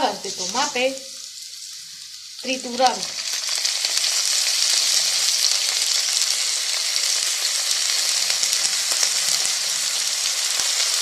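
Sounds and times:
food sizzling in oil: 0.0s - 11.0s.

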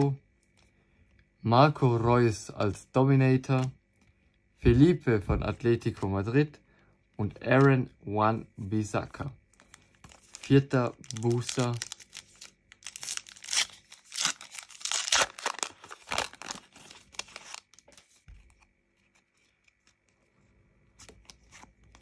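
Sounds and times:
wrapper tearing and crinkling: 10.1s - 18.0s.

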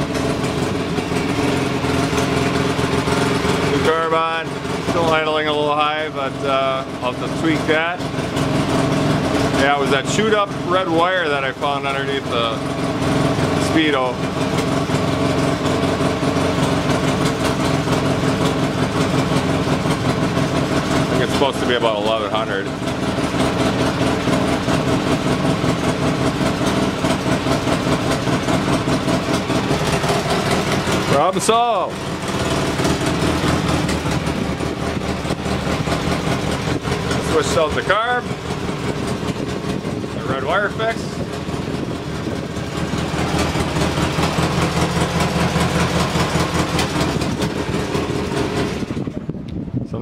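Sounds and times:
atv engine idling: 0.0s - 50.0s.

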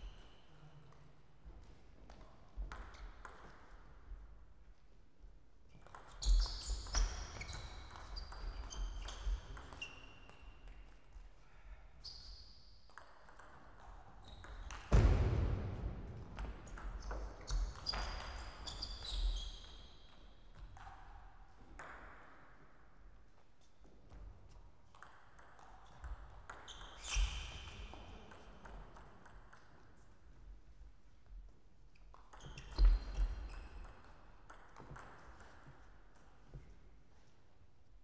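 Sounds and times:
shoes squeaking on floor: 6.1s - 10.6s, 17.2s - 20.0s, 26.6s - 27.8s, 31.9s - 33.8s
table tennis ball clicking and bouncing: 12.9s - 14.9s, 24.9s - 26.9s, 32.1s - 35.8s
loud thump: 14.9s - 16.5s.

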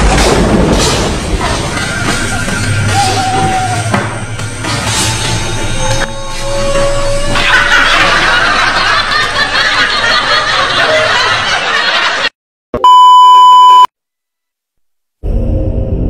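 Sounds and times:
music: 0.7s - 9.1s
electronic bleep tone: 12.8s - 13.9s.

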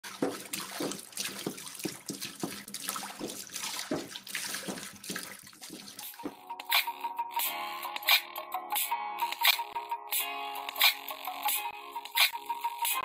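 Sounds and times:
water splashing and running: 0.0s - 6.4s.

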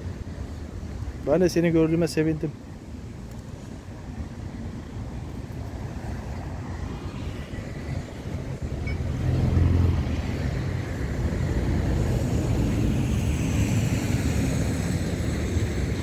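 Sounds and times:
road traffic rumble: 0.0s - 16.0s
vehicle passing: 5.9s - 16.0s.

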